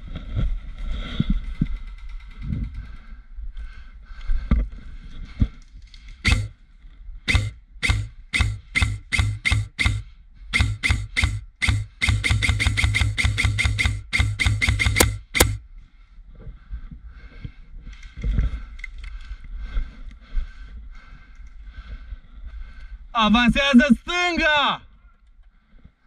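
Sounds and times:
airsoft gun shots with gearbox whirr: 6.2 - 6.5, 7.3 - 15.6
faint clicks: 17.8 - 20.2, 21.2 - 21.7.

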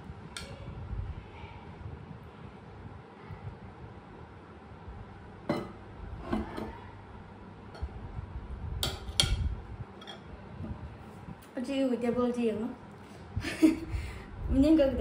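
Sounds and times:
dishes and spoon clinking: 5.5 - 6.7, 8.8 - 10.3.

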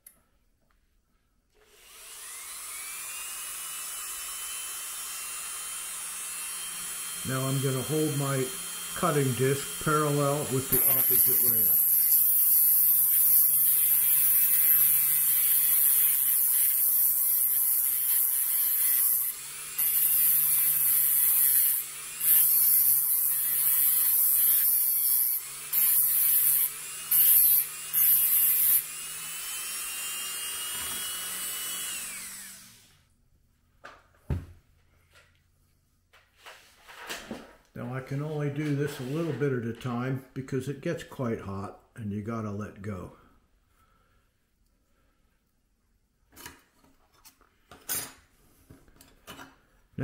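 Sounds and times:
rotary tool motor hum: 1.6 - 33.0
cutting disc grinding metal rail: 6.6 - 32.6.

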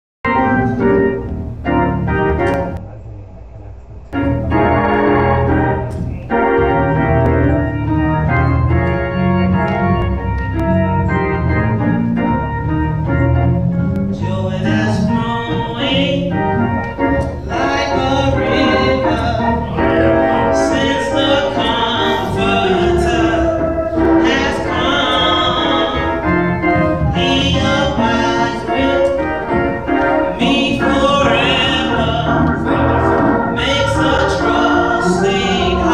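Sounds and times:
church organ chords: 0.3 - 2.8, 4.1 - 35.9
woman singing: 14.2 - 16.3, 17.5 - 19.6, 20.6 - 26.2, 27.2 - 29.2.

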